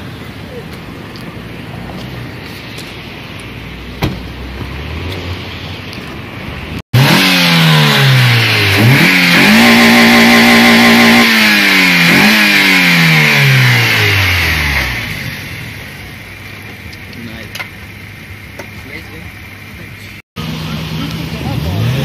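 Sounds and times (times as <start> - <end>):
car engine revving: 3.7 - 16.0, 20.4 - 22.0.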